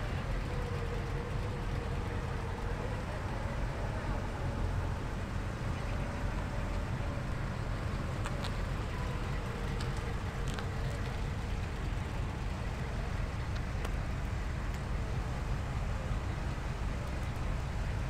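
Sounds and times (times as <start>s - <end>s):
car engines rumbling: 0.0s - 18.0s.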